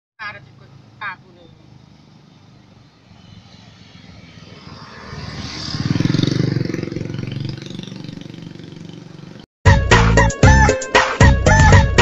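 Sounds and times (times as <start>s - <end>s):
motorcycle engine revving: 1.6s - 9.5s.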